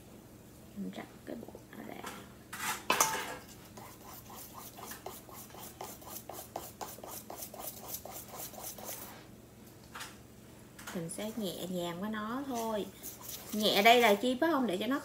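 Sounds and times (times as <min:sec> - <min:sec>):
whisk beating batter in metal bowl: 0:03.7 - 0:09.1, 0:12.4 - 0:14.3.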